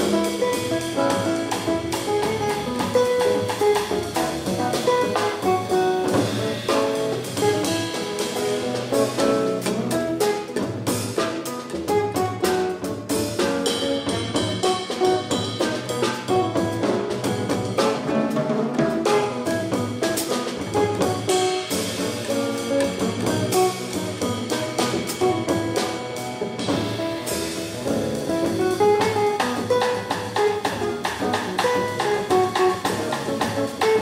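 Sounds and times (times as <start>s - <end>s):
drum kit with cymbals: 0.0s - 34.0s
nylon-string guitar: 0.0s - 34.0s
upright double bass: 0.0s - 34.0s.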